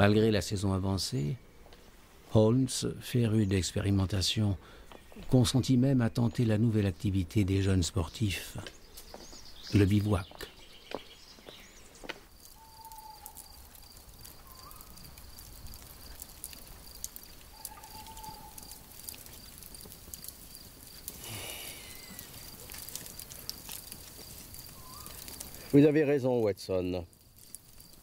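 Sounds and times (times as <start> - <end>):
campfire crackling: 4.5 - 28.0
insect chirring: 11.6 - 28.0
faint animal calls: 12.5 - 13.5, 17.5 - 19.0, 21.2 - 22.8, 24.7 - 25.5.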